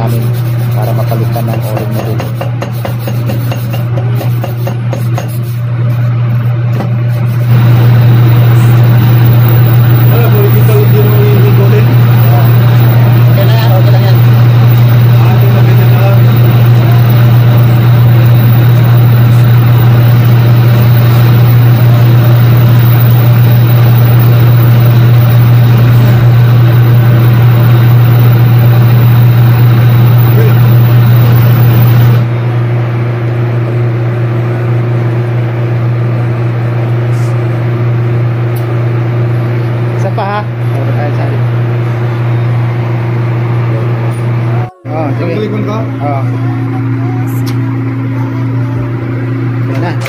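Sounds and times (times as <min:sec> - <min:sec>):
low drone of ship machinery: 0:07.2 - 0:35.4
torch flame hissing: 0:07.3 - 0:32.2.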